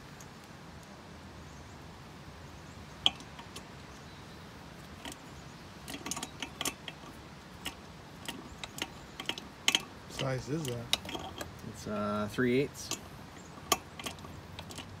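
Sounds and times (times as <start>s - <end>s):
hand tools clicking on metal: 3.0s - 3.7s, 5.0s - 15.0s.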